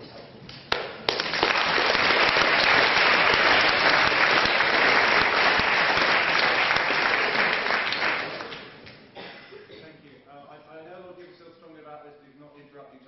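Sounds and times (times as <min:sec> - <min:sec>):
audience applauding: 0:00.7 - 0:08.8.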